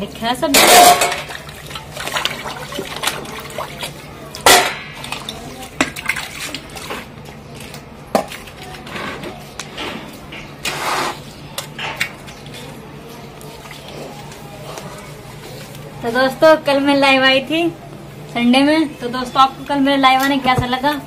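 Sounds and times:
steel utensils clinking: 0.4 - 1.4
water sloshing and splashing: 0.6 - 8.9.

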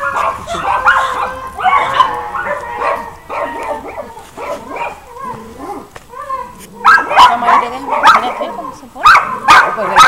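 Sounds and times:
dogs barking and yipping: 0.0 - 10.0.

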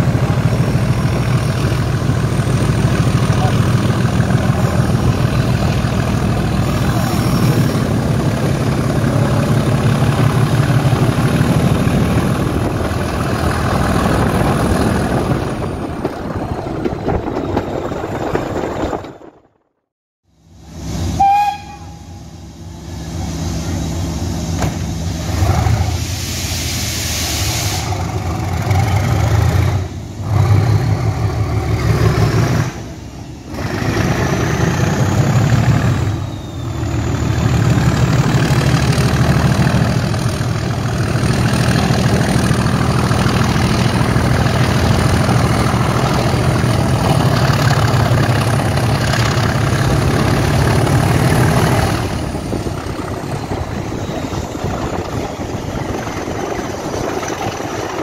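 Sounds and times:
train wheels on rails: 0.0 - 19.6, 20.4 - 58.0
diesel locomotive engine thrashing: 0.0 - 19.8, 20.5 - 58.0
short high horn toot: 21.2 - 22.3.

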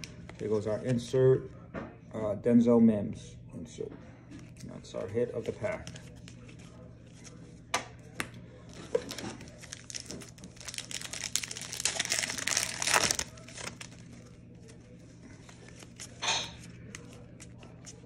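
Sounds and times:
wrapper crinkling and tearing: 8.7 - 16.2.

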